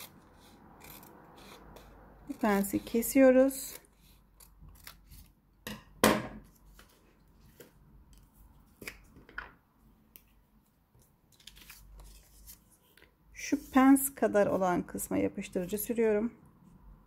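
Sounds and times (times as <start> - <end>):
scissors snipping paper: 0.0 - 5.3
paper handling: 11.3 - 13.1.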